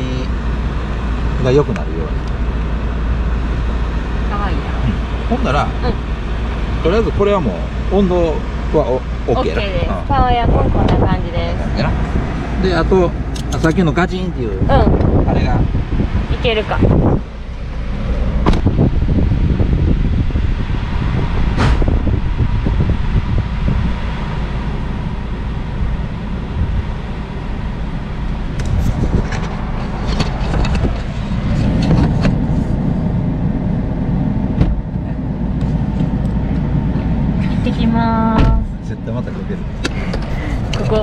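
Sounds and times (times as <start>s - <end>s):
car engine rumble: 0.0s - 41.0s
sharp clicks and knocks: 13.3s - 13.8s.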